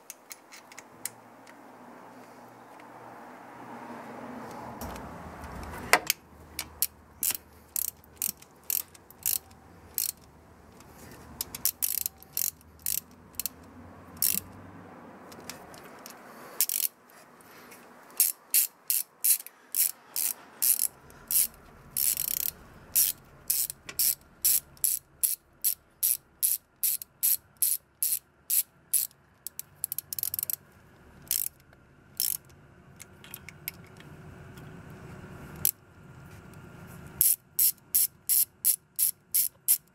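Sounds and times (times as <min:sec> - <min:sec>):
ratchet wrench clicking: 0:04.8 - 0:14.6, 0:15.3 - 0:17.0, 0:18.1 - 0:30.6, 0:31.2 - 0:31.6, 0:32.2 - 0:32.5, 0:37.2 - 0:39.9.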